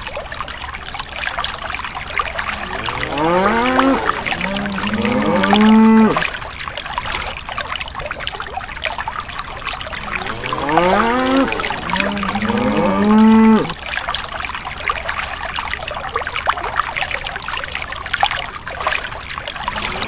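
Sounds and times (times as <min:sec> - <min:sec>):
water trickling into a pool: 0:00.0 - 0:20.0
cow mooing: 0:02.4 - 0:06.3, 0:09.9 - 0:13.8, 0:19.7 - 0:20.0.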